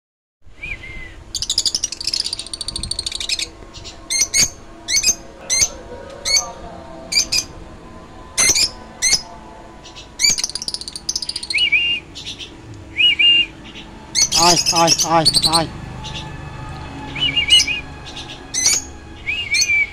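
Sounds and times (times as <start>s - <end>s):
lovebirds chirping: 8.4s - 19.9s.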